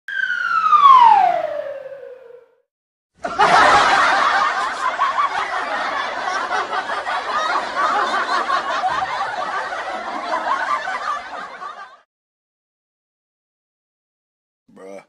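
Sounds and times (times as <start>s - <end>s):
whistle-like tone gliding downward: 0.1s - 2.7s
laughter sound effect: 3.2s - 12.0s.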